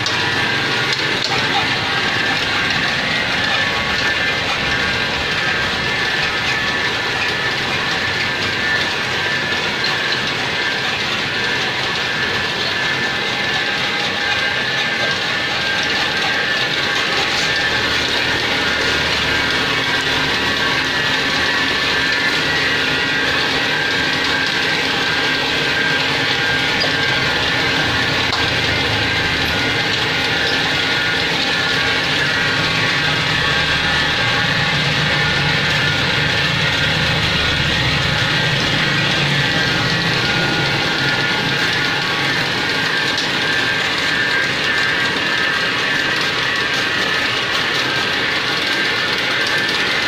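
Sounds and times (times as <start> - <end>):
printing machine rollers turning: 0.0 - 50.0.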